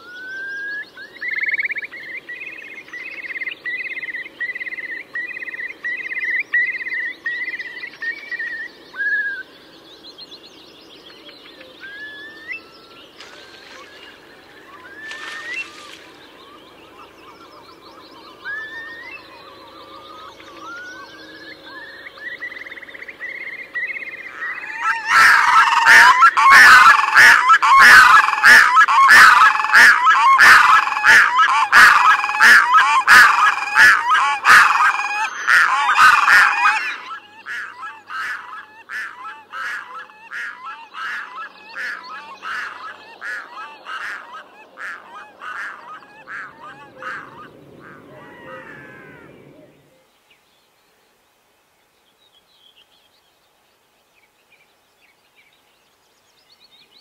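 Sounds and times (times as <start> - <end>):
loons wailing calls: 13.2 - 22.7, 24.3 - 50.0.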